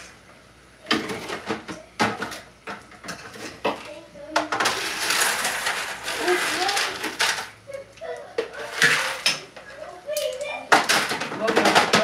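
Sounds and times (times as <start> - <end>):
utensil clinking and scraping pots: 0.9 - 12.0.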